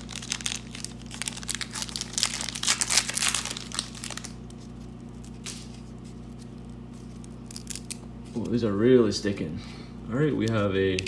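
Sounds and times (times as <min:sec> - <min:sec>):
foil wrapper crinkling and tearing: 0:00.0 - 0:08.6.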